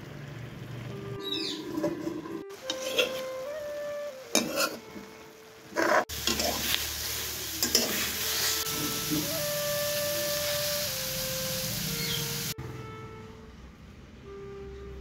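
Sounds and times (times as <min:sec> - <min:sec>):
greens sizzling in oil: 0:00.0 - 0:12.6
metal spatula scraping a wok: 0:01.6 - 0:03.4, 0:04.3 - 0:04.8, 0:05.8 - 0:09.3.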